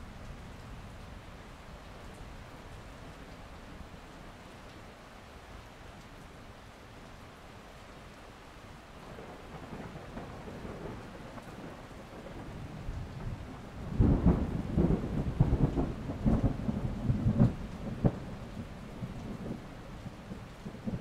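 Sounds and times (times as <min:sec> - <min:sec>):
steady rain: 0:00.0 - 0:21.0
thunder rumbling and cracking: 0:09.1 - 0:21.0.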